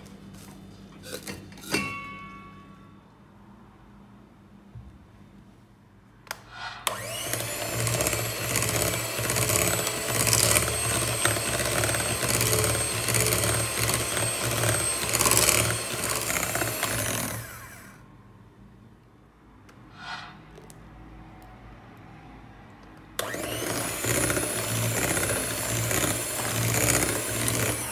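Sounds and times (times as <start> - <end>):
electric hand mixer whirring: 6.9 - 18.0, 23.2 - 27.9.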